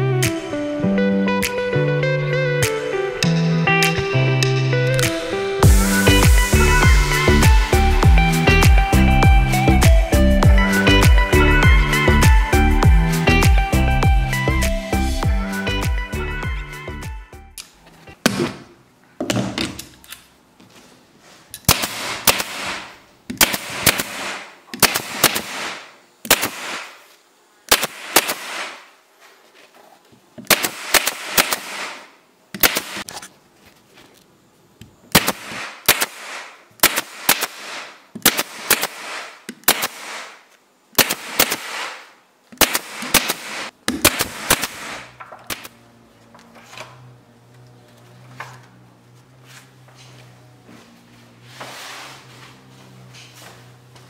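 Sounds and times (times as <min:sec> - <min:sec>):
air hissing: 0:05.0 - 0:08.5.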